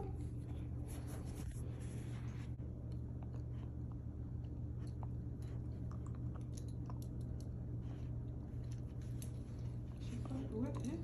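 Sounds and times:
steady low hum: 0.0s - 11.0s
dog chewing with crunches: 2.7s - 11.0s.

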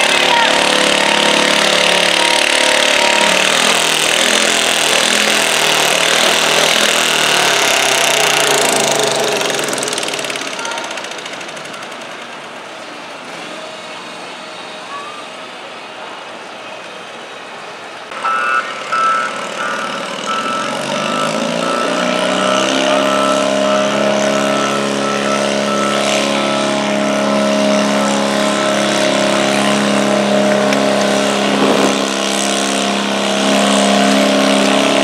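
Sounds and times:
tractor engine under load: 0.0s - 18.0s, 18.8s - 35.0s
sled tractor running: 0.0s - 35.0s
short beeps: 18.2s - 26.2s.

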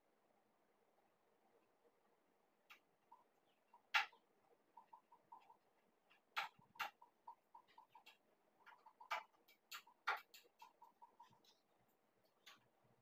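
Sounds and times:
sharp clicks and light taps: 2.6s - 2.9s, 3.8s - 4.2s, 6.1s - 12.8s.

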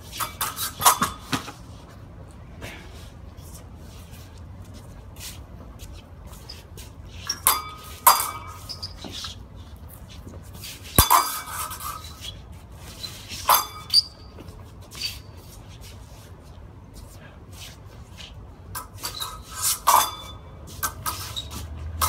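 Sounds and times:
steel swords clashing: 7.3s - 9.1s, 11.0s - 12.2s, 13.3s - 14.4s, 18.8s - 21.6s.

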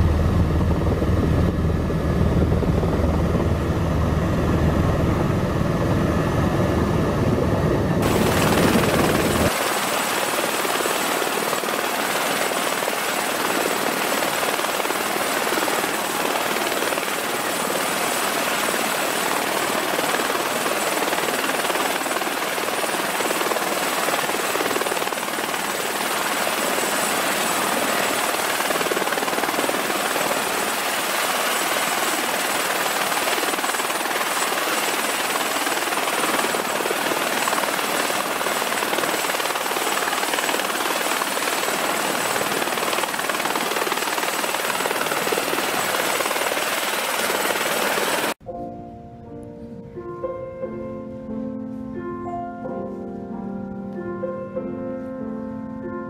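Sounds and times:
helicopter rotor rushing: 0.0s - 48.4s
helicopter rumble inside cabin: 0.0s - 48.4s
high turbine whine: 0.0s - 48.4s.

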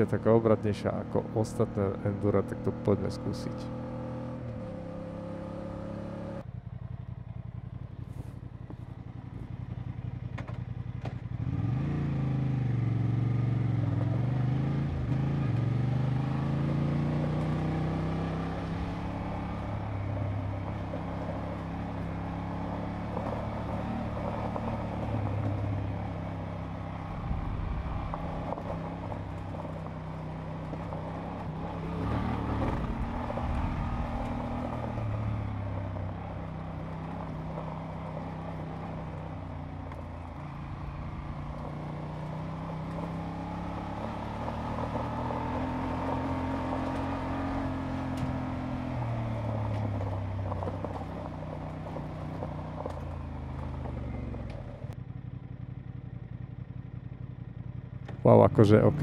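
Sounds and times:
motorcycle engines revving: 0.0s - 59.0s.

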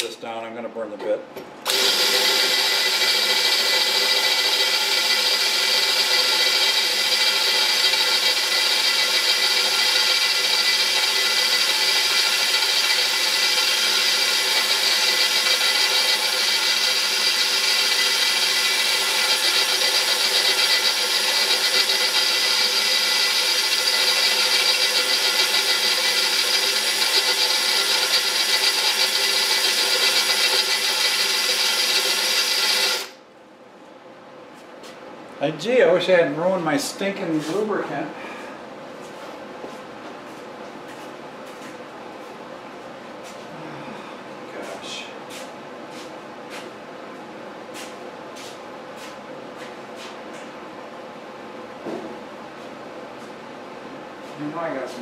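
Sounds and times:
drill cutting through metal: 1.7s - 33.2s.

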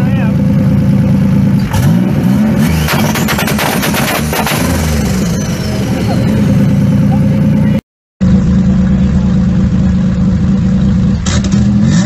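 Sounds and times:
car engine revving: 0.1s - 12.0s
engine pops and bangs: 2.8s - 5.0s.

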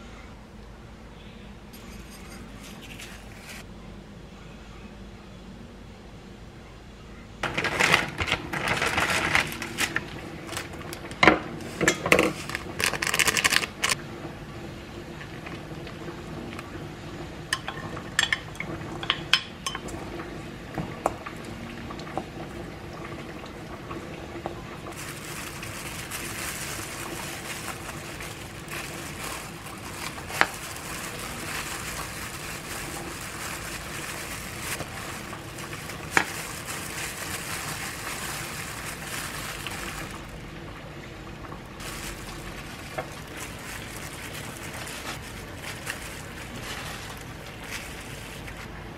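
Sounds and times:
wooden spoon scraping steel bowl: 1.7s - 3.6s
plastic gloves rustling: 1.7s - 3.7s, 7.4s - 14.0s, 24.8s - 40.8s, 41.7s - 48.9s.

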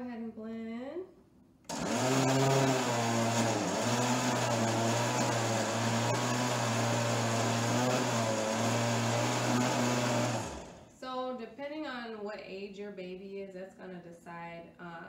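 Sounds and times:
blender running: 1.7s - 11.0s.

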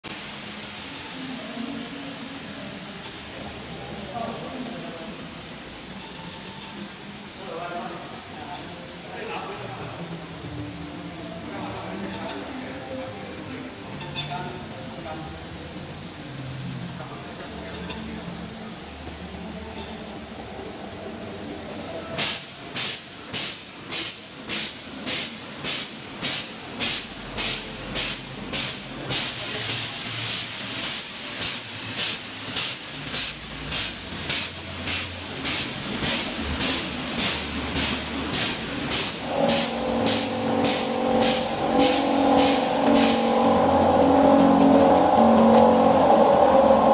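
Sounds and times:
packaging machine hissing: 22.2s - 43.3s
steady tones: 37.0s - 46.9s.

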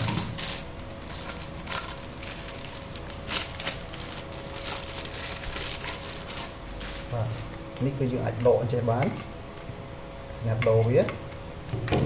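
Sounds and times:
plastic bags rustling: 0.0s - 8.3s.

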